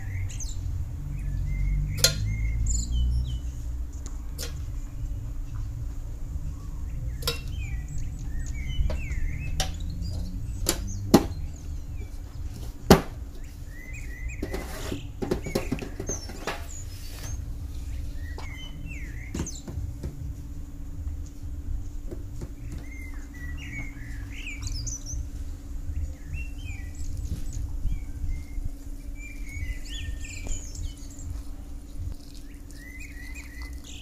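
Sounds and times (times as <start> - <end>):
low steady hum: 0.0 - 34.0
small birds chirping: 0.0 - 34.0
rustling: 11.0 - 19.2.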